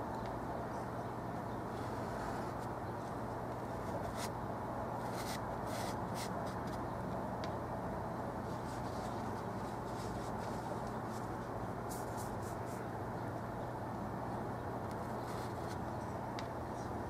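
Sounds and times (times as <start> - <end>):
steady background hum: 0.0 - 17.0
paintbrush strokes on canvas: 8.4 - 12.8.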